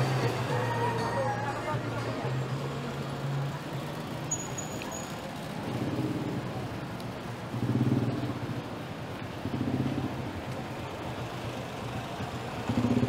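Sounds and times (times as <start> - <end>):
vehicle engines passing: 0.0 - 13.0.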